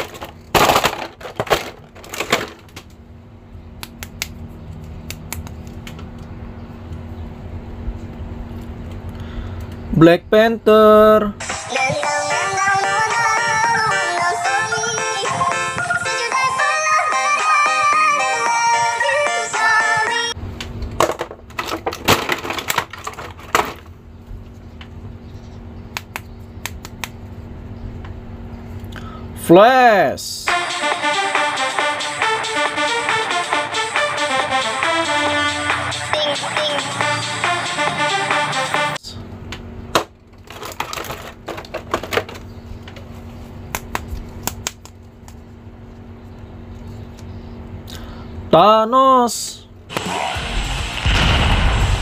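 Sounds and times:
faint steady hum: 23.6s - 33.9s, 39.0s - 49.9s
plastic packaging crinkling: 40.3s - 42.2s.

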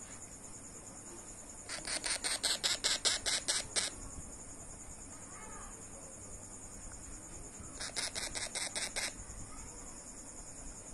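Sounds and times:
parrot chick squawking: 1.7s - 3.9s, 7.8s - 9.2s.

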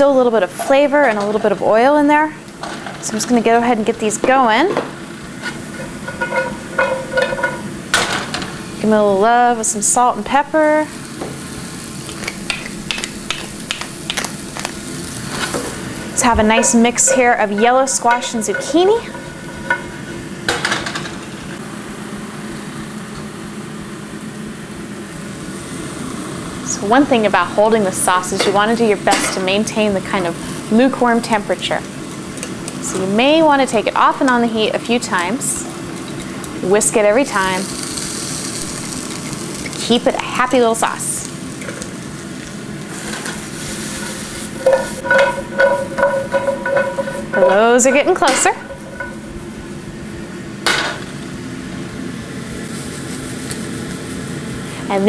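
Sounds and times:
vegetables sizzling in a frying pan: 0.0s - 55.0s
vent fan humming: 0.0s - 55.0s
utensil clattering against pan: 4.7s - 8.5s, 16.2s - 21.2s, 44.0s - 49.3s.

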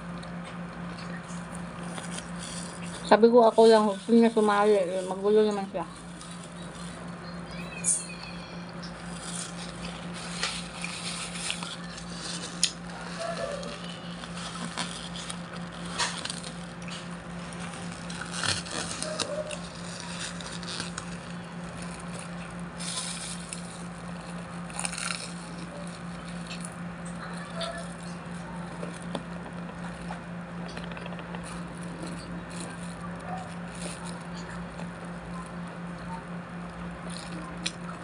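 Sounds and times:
steady low hum: 0.0s - 38.0s
plastic wrapping crinkling: 0.8s - 7.4s, 8.8s - 38.0s
chewing and biting: 9.0s - 38.0s
clicks and rustles: 9.1s - 36.2s.

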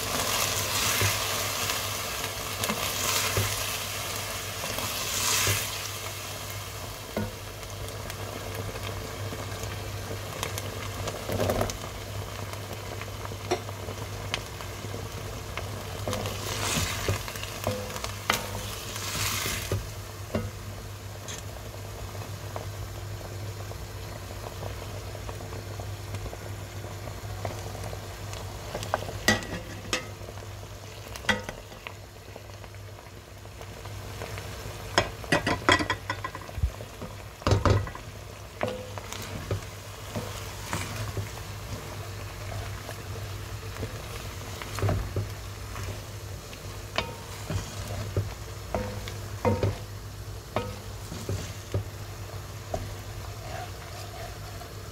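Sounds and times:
food frying in oil: 0.0s - 54.9s
steady low hum: 36.6s - 54.9s
wooden spoon scraping a pot: 38.6s - 43.0s, 46.9s - 49.9s, 50.5s - 52.1s, 52.7s - 54.9s.

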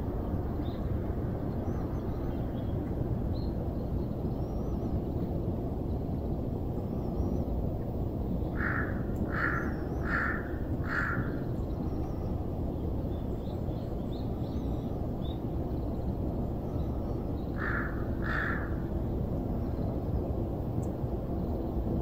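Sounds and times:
low outdoor rumble: 0.0s - 22.0s
crow cawing: 8.6s - 11.4s, 17.6s - 18.8s.

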